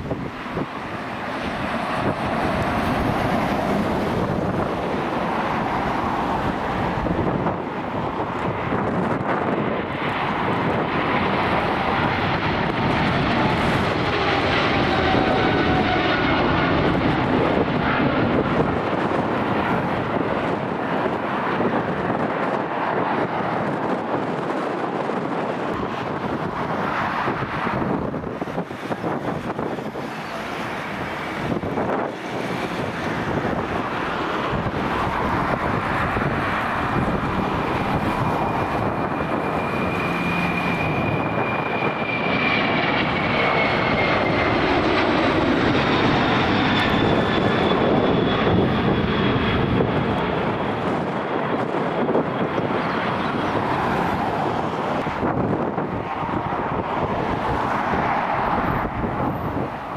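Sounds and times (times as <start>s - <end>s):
airliner engines roaring: 0.0s - 59.9s
high engine whine falling in pitch: 35.8s - 50.3s.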